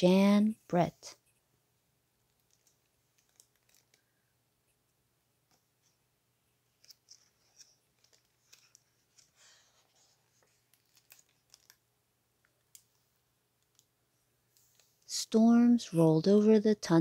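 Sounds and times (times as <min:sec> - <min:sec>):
book pages turning: 0:02.3 - 0:04.1, 0:06.7 - 0:11.8
paper rustling: 0:02.3 - 0:04.1, 0:06.8 - 0:11.8.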